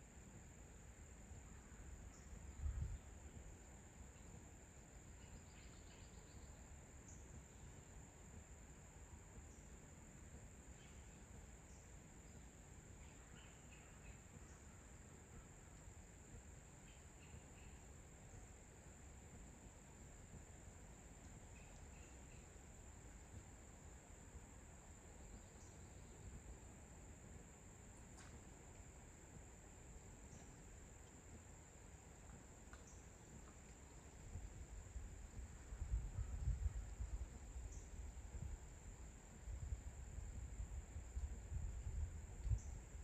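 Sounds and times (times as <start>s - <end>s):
wind rumble on microphone: 2.2s - 3.6s, 34.1s - 43.0s
faint tick: 15.7s - 15.9s, 21.2s - 22.0s, 30.3s - 31.2s, 32.2s - 34.0s, 41.1s - 41.4s, 42.4s - 42.8s.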